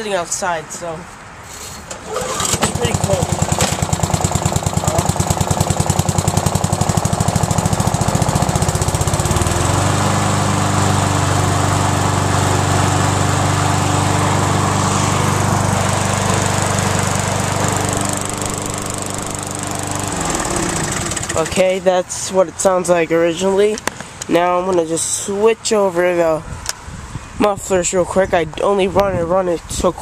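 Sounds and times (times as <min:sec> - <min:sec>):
lawnmower engine running: 0:01.9 - 0:21.8.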